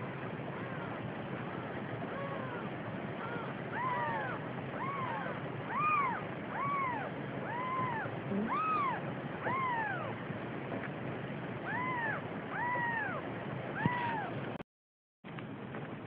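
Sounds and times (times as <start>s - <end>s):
kittens mewing: 0.5s - 10.2s, 11.6s - 14.4s.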